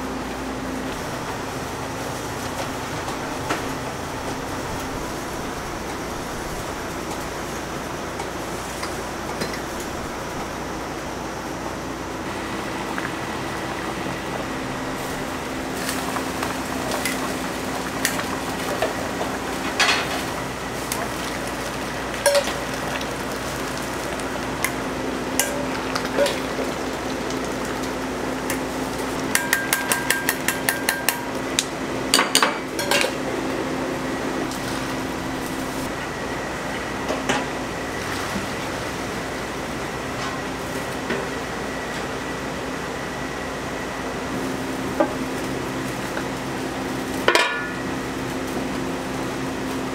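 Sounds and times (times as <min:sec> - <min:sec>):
stockpots boiling: 0:00.0 - 0:49.9
utensils clinking against pots: 0:18.0 - 0:21.1, 0:22.2 - 0:22.8, 0:25.4 - 0:26.6, 0:29.2 - 0:31.4, 0:32.1 - 0:33.2, 0:47.2 - 0:47.8.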